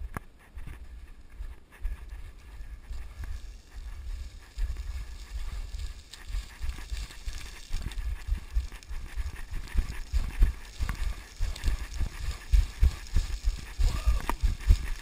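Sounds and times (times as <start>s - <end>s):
wind buffeting microphone: 0.0s - 15.0s
boots crunching through scree: 9.9s - 15.0s.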